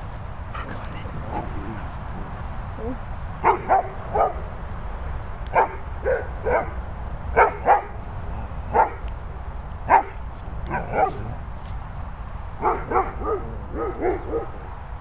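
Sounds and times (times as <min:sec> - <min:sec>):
dog barking: 0:03.4 - 0:04.4, 0:05.5 - 0:06.8, 0:07.4 - 0:08.0, 0:08.7 - 0:09.0, 0:09.9 - 0:11.4, 0:12.6 - 0:14.6.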